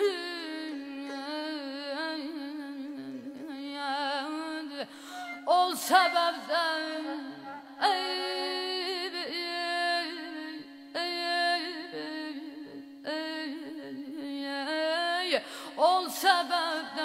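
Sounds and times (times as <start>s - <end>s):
woman singing with trills: 0.0s - 10.7s.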